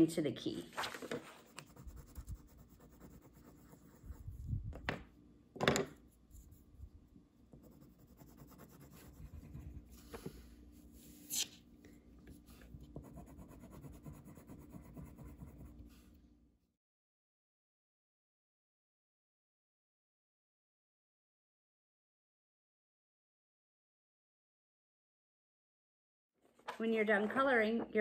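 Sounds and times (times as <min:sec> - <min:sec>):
crayon scratching on paper: 0:01.4 - 0:04.4, 0:07.5 - 0:10.3, 0:12.8 - 0:15.9.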